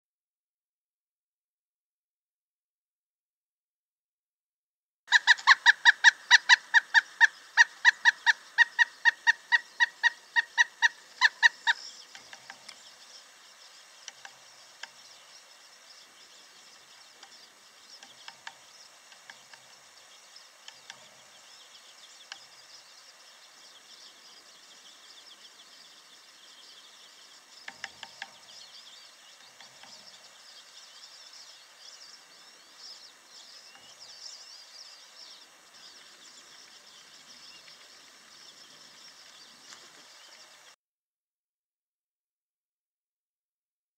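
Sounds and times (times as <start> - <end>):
woodpecker hammering on wood: 5.1 - 12.8, 18.0 - 19.8, 20.6 - 21.3, 27.6 - 28.6, 29.3 - 30.2.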